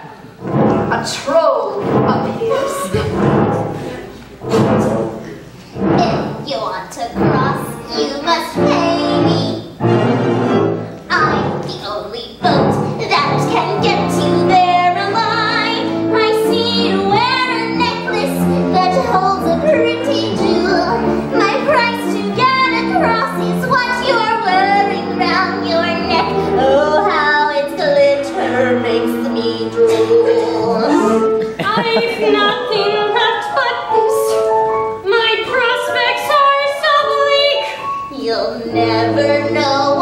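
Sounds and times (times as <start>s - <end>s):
instrumental accompaniment: 0.2s - 40.0s
women singing: 12.4s - 34.4s, 35.1s - 40.0s.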